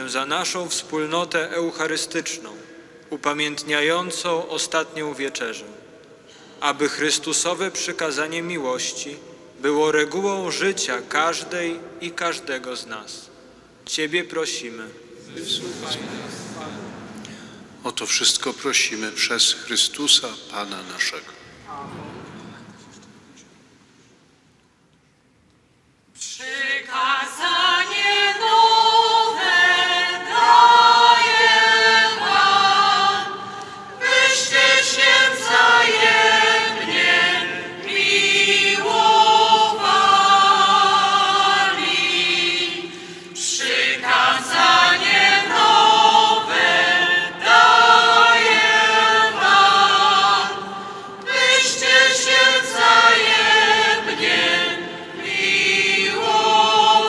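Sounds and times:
choir singing a hymn unaccompanied: 0:26.2 - 0:57.0.

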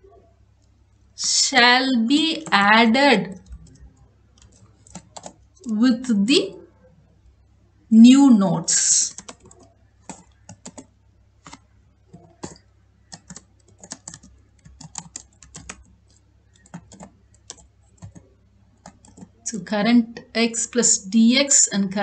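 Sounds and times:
computer keyboard typing: 0:02.2 - 0:02.7, 0:03.3 - 0:05.8, 0:08.8 - 0:19.4.

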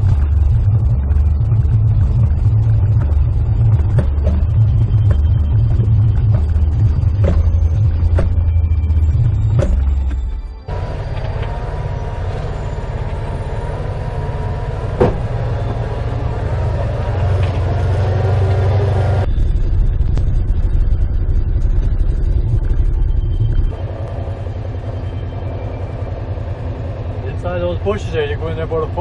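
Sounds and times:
engine drone: 0:00.0 - 0:29.0
heavy low rumble: 0:00.0 - 0:29.0
sharp knock: 0:15.0 - 0:15.5.

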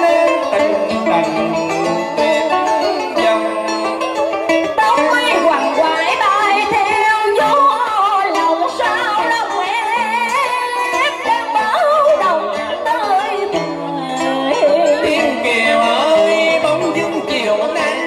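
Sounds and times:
instrumental accompaniment: 0:00.0 - 0:18.0
woman singing with vibrato: 0:04.6 - 0:18.0.

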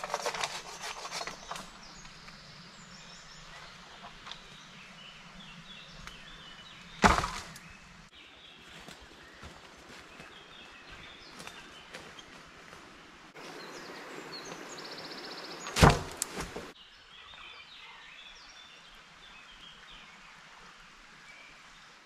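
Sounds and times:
rustling: 0:00.0 - 0:02.1, 0:15.6 - 0:16.8
bird calls: 0:00.0 - 0:12.6, 0:13.4 - 0:18.7.

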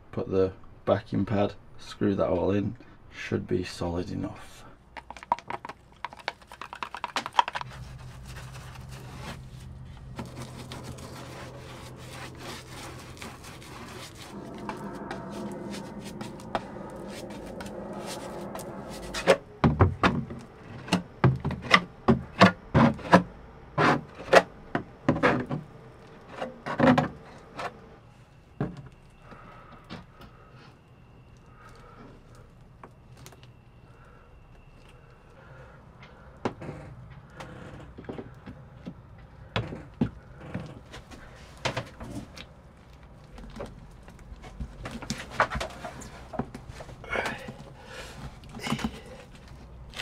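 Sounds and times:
stick clicking against plastic cup: 0:05.0 - 0:07.7
scraping strokes on wood: 0:07.6 - 0:19.4
steady low hum: 0:07.6 - 0:50.0.

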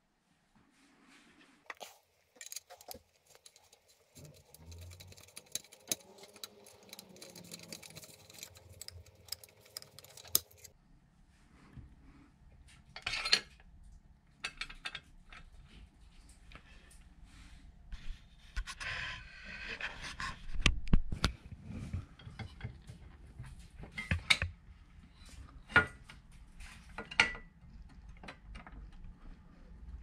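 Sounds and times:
metal tools clinking: 0:02.4 - 0:10.7.

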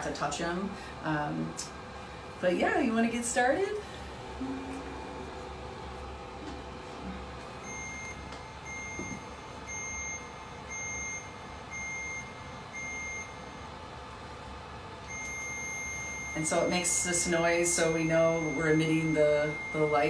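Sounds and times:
steady low hum: 0:00.0 - 0:20.0
long steady beeps: 0:07.6 - 0:13.6, 0:15.1 - 0:17.0, 0:17.8 - 0:20.0.

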